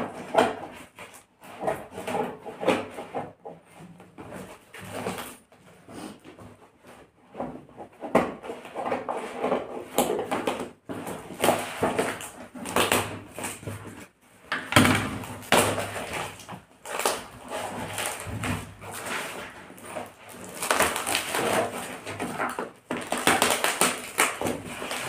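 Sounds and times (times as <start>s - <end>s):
packing tape ripping: 20.3s - 25.0s.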